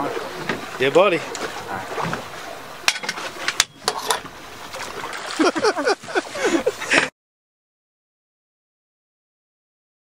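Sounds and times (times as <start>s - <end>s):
water splashing against boat: 0.0s - 7.1s.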